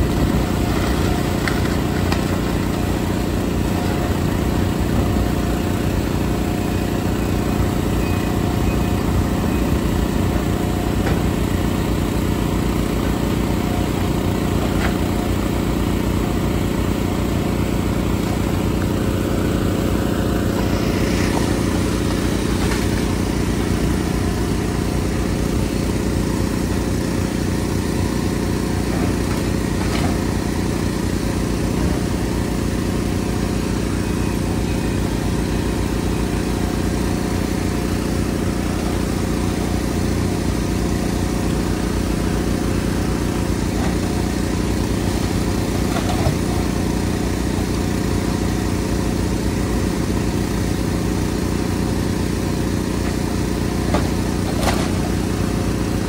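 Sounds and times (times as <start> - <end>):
excavator diesel engine running: 0.0 - 56.0
wood knocking and cracking: 0.7 - 2.8.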